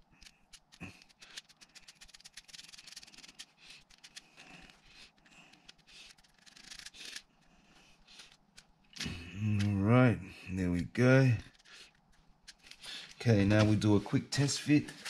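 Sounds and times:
fingers rubbing plastic: 0.0s - 9.8s, 11.4s - 15.0s
plastic bezel shifting in hands: 11.4s - 13.7s.

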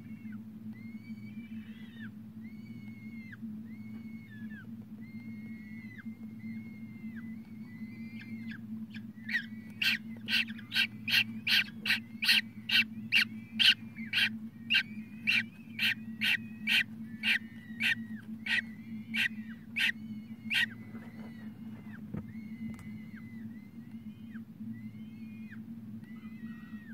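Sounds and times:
steady low hum: 0.0s - 26.9s
thin peeps: 0.0s - 26.9s
falcon chick harsh chirps: 9.3s - 21.4s.

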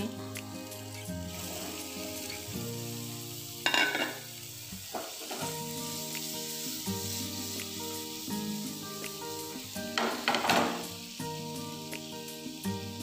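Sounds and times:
cheese cubes sizzling in butter: 0.0s - 13.0s.

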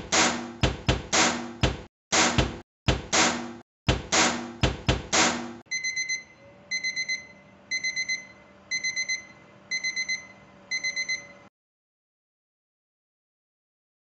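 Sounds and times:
loud knock: 0.0s - 5.6s
electronic kitchen alarm beeping: 5.7s - 11.5s.

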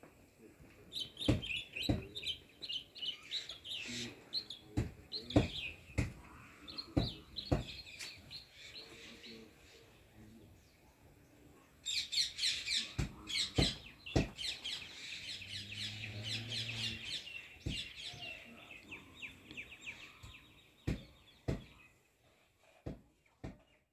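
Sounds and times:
small birds chirping: 0.4s - 23.9s
sharp knocks: 1.2s - 2.2s, 4.8s - 6.2s, 7.0s - 7.8s, 13.0s - 14.4s, 17.6s - 17.9s, 20.8s - 21.8s.

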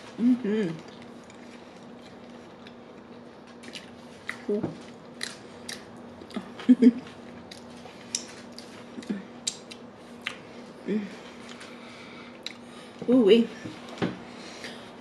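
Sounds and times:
closed-mouth hums: 0.0s - 1.0s
close chewing with mouth clicks: 7.2s - 10.5s.

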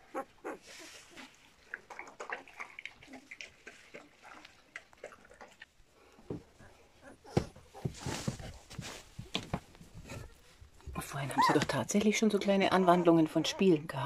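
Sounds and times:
puppies squeaking and whimpering: 11.3s - 11.7s.

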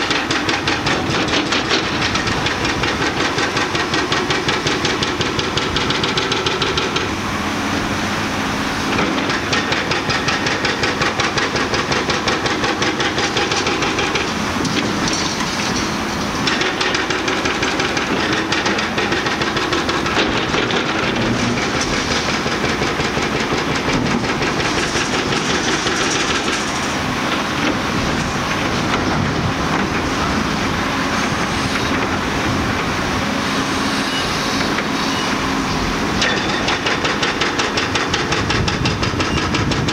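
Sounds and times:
hydraulic breaker hammering concrete: 0.0s - 7.2s, 8.9s - 30.4s, 36.1s - 39.9s.

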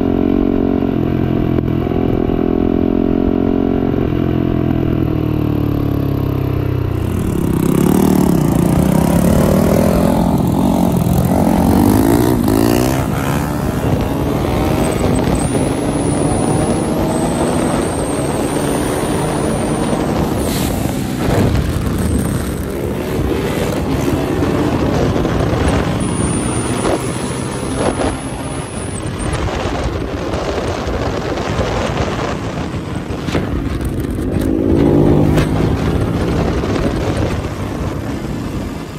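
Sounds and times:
wind rush on microphone: 6.5s - 38.9s
dirt bike engine revving: 6.9s - 29.8s, 33.8s - 37.0s.

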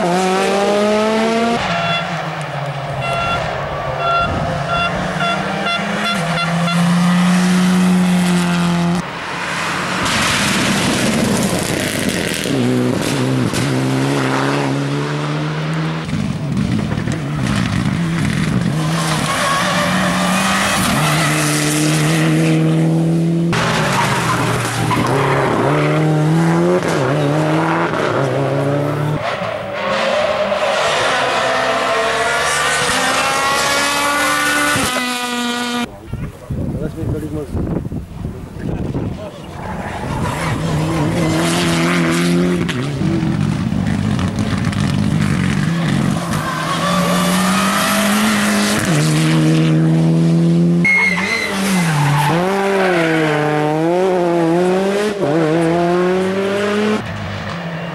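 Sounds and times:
rally car engines revving: 0.0s - 57.9s.

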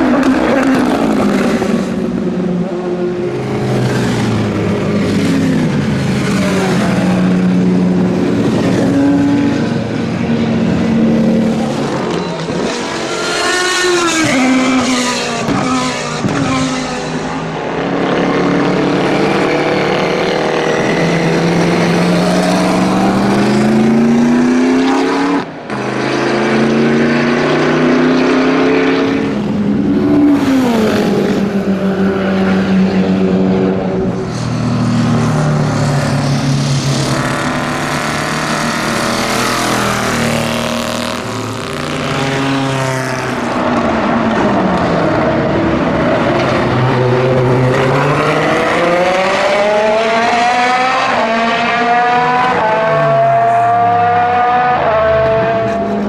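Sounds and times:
racing car engines revving: 0.0s - 56.0s.

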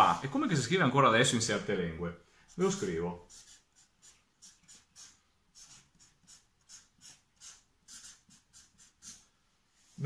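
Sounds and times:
marker pen writing on paper: 2.4s - 9.3s.

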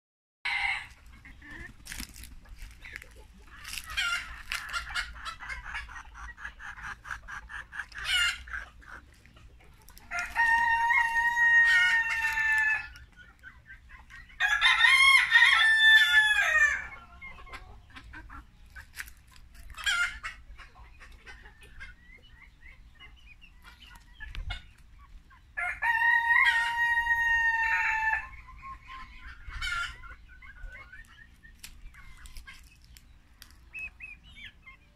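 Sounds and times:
chickens clucking and calling: 0.4s - 34.9s
rooster crowing: 10.1s - 12.9s, 14.4s - 16.8s.

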